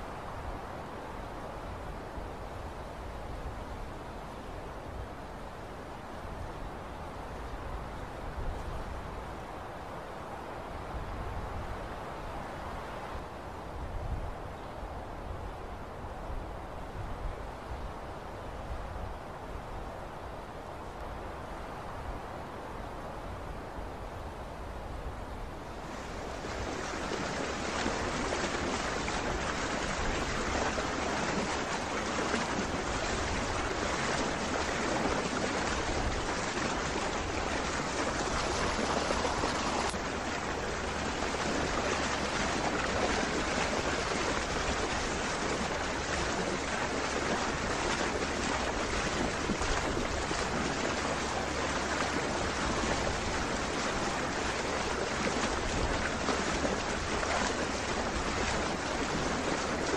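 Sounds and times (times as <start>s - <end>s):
wind: 0.0s - 59.9s
water rushing: 25.4s - 59.9s.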